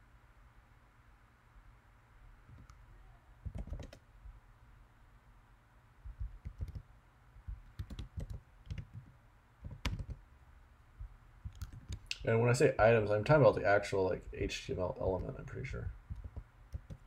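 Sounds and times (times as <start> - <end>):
typing on computer keyboard: 3.4 - 4.0, 6.1 - 6.8, 7.5 - 10.2, 11.4 - 12.1, 16.1 - 17.0.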